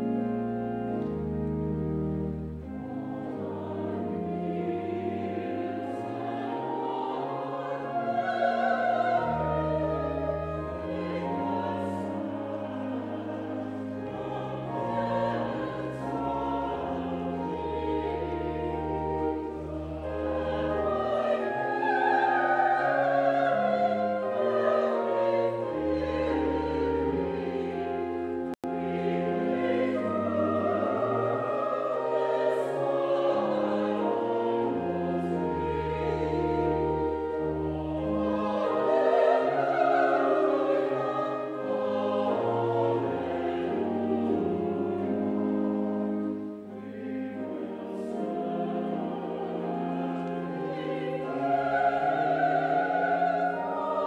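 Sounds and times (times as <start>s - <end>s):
instrumental accompaniment with bass notes: 0.0s - 40.0s
choir singing: 0.0s - 54.0s.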